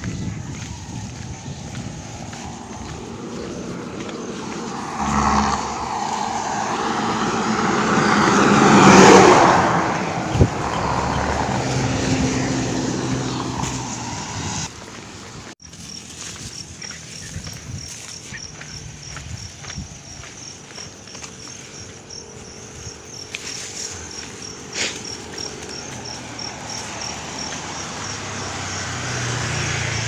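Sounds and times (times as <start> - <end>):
vehicle driving past: 0.1 - 14.8, 23.6 - 30.0.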